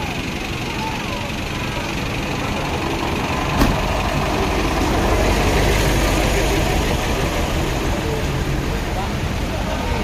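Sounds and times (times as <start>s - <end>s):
diesel truck engines passing: 0.0s - 10.0s.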